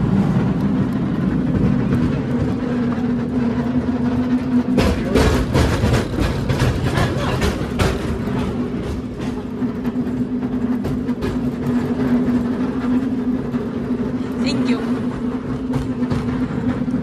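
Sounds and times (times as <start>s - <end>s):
tram rumbling on rails: 0.0s - 17.0s.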